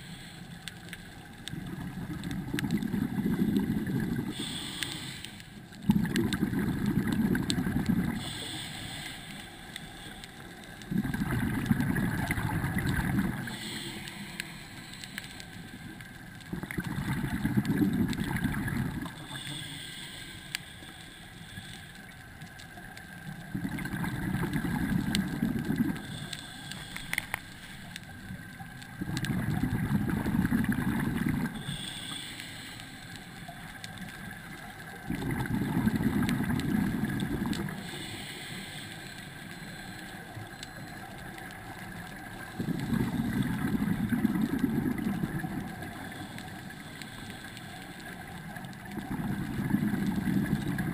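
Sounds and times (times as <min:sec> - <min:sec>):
diver bubbling exhalations: 0:01.6 - 0:04.3, 0:05.8 - 0:08.2, 0:10.9 - 0:13.5, 0:16.5 - 0:19.2, 0:23.5 - 0:26.0, 0:29.0 - 0:31.6, 0:35.0 - 0:37.7, 0:42.6 - 0:45.8, 0:49.0 - 0:50.9.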